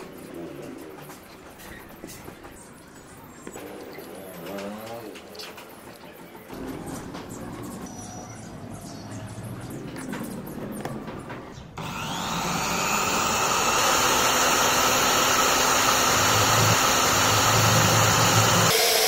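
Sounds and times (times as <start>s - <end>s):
drill bit grinding into metal: 11.8s - 19.0s
drill press motor whine: 11.8s - 19.0s.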